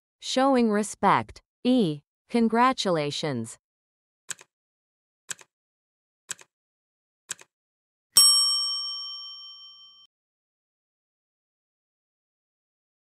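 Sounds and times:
bright ding: 8.2s - 10.1s.

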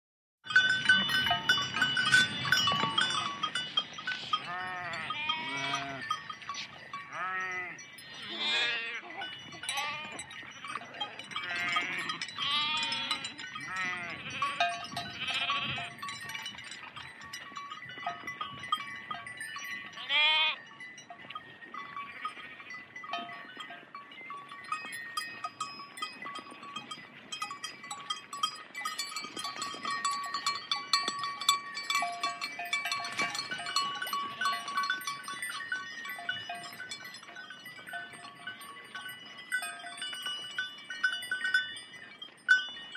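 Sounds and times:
bells ringing: 0.4s - 42.9s
sheep bleating: 4.3s - 6.1s, 7.1s - 10.2s, 11.4s - 16.0s, 20.0s - 20.6s.

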